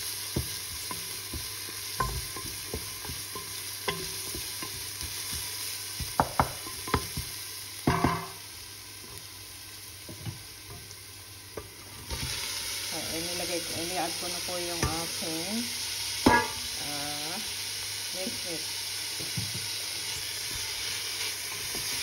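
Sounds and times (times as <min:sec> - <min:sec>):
onion sizzling in hot oil: 0:00.0 - 0:22.0
wooden spatula scraping a pan: 0:20.0 - 0:22.0.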